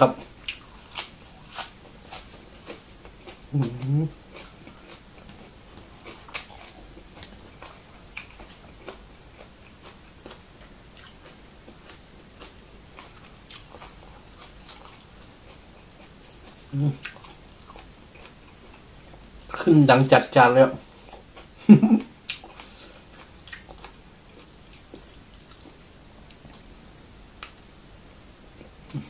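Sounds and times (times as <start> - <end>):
close-miked chewing: 0.1 - 19.6, 20.8 - 26.7
closed-mouth hums: 3.5 - 4.9, 16.6 - 17.1.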